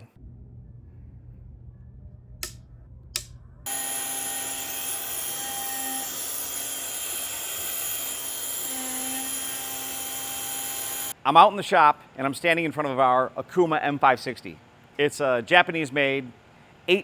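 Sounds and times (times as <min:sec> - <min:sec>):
switch clicks: 0:02.4 - 0:03.4.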